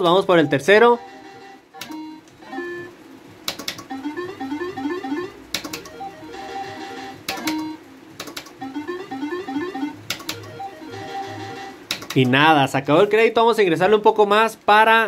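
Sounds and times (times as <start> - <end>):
sharp clicks: 1.8 - 2.4, 3.4 - 4.0, 5.5 - 6.0, 7.2 - 8.6, 10.1 - 10.6, 11.9 - 12.4
rising electronic beeps: 8.6 - 11.8.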